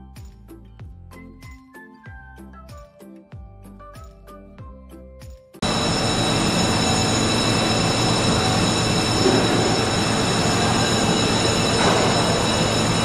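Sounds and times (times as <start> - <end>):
machinery rumble with high whine: 5.6 - 13.0.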